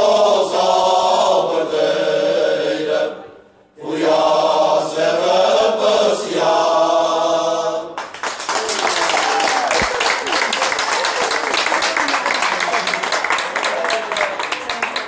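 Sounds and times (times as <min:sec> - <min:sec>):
men's choir singing unaccompanied: 0:00.0 - 0:03.2, 0:03.8 - 0:08.0.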